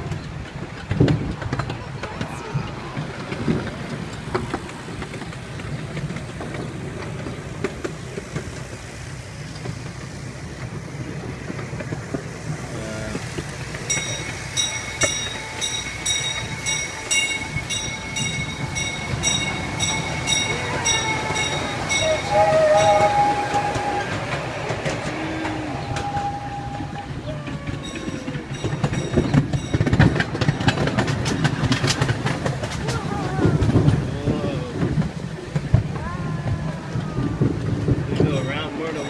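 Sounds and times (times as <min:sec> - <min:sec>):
ride-on train rumbling on track: 0:00.0 - 0:39.0
crossing signal bell ringing: 0:13.8 - 0:24.2, 0:27.7 - 0:31.0, 0:38.2 - 0:39.0.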